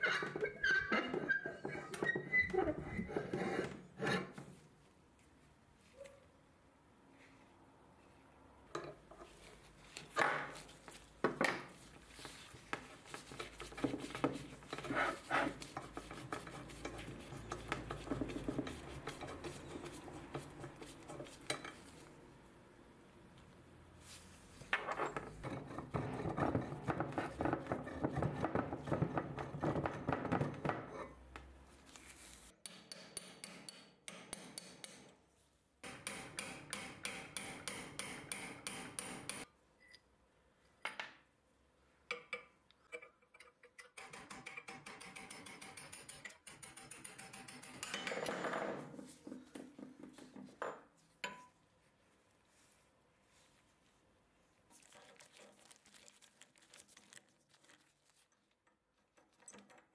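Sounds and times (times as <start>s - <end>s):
regular metal taps: 32.6s - 35.2s, 35.8s - 40.0s, 42.0s - 48.4s.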